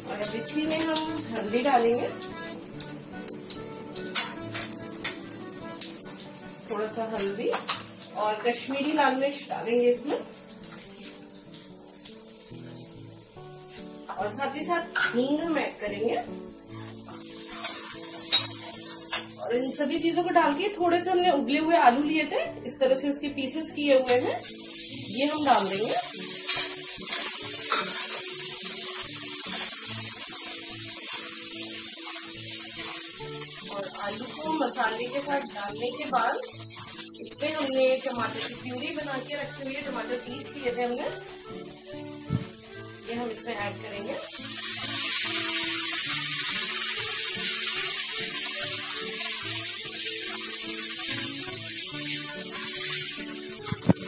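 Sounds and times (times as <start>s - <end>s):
potatoes sizzling in hot oil: 0.0s - 21.2s, 23.0s - 54.0s
spatula stirring in pan: 17.2s - 19.2s.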